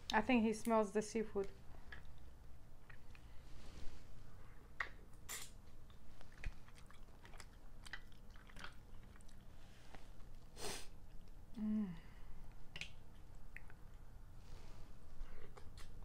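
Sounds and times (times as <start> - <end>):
chewing and smacking: 1.8 - 3.4, 4.8 - 11.6, 12.4 - 14.2, 15.2 - 16.0
low voice hum: 11.5 - 12.2.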